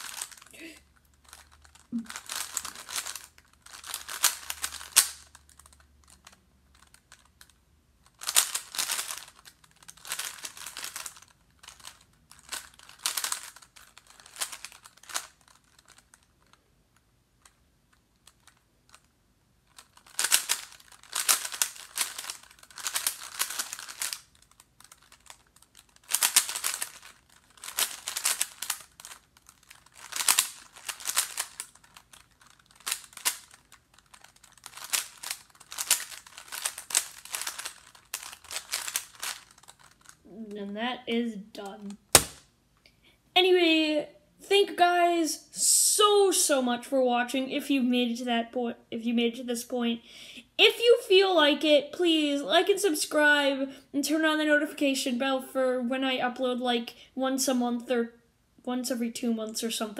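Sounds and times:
puzzle cube layers clicking: 1.2s - 7.5s, 8.1s - 16.6s, 19.7s - 40.2s, 41.6s - 42.4s.

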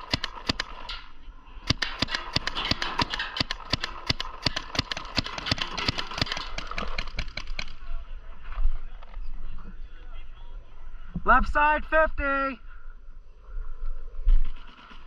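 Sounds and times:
paintball markers firing rapidly: 0.0s - 0.9s, 1.7s - 7.8s.

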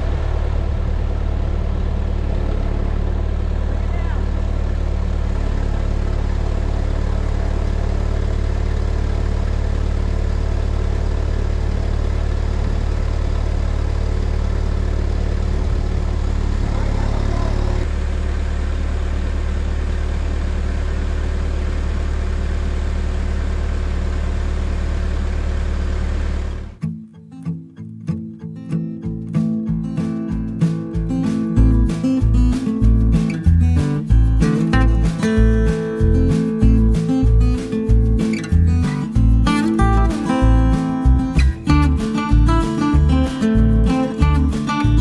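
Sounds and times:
heavy engine idling: 0.0s - 26.8s.

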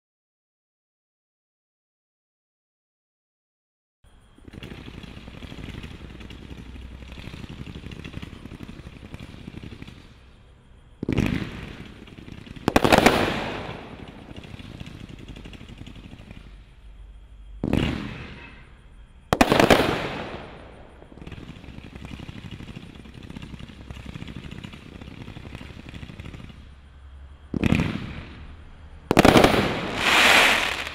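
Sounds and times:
fireworks cake firing shots: 4.4s - 10.3s, 11.0s - 16.6s, 17.6s - 18.6s, 19.3s - 26.7s, 27.5s - 30.9s
loud firework bursts: 4.4s - 17.0s, 17.6s - 30.9s.

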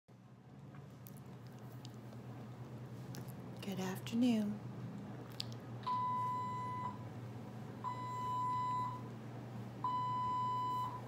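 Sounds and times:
infusion pump alarm beeps: 5.9s - 7.0s, 7.8s - 9.1s, 9.8s - 11.0s.

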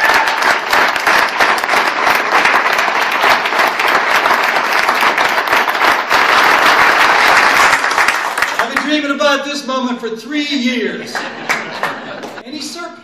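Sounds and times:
crowd applauding: 0.0s - 9.2s, 11.2s - 12.5s.

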